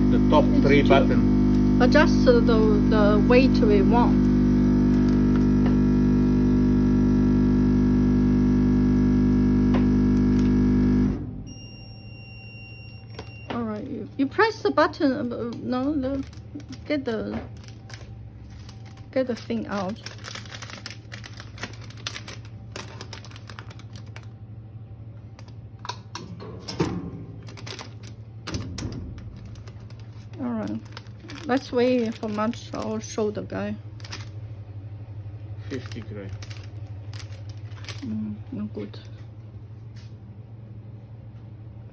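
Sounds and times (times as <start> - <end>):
machine feeder humming: 0.0 - 11.6
steady low hum: 0.0 - 41.9
plastic bag crinkling: 15.8 - 24.4, 27.4 - 28.4, 29.1 - 34.4, 35.6 - 38.2.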